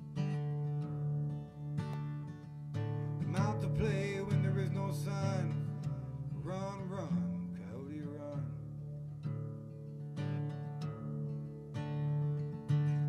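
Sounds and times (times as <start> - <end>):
acoustic guitar strumming: 0.0 - 13.0
person singing wavering phrases: 3.3 - 8.7.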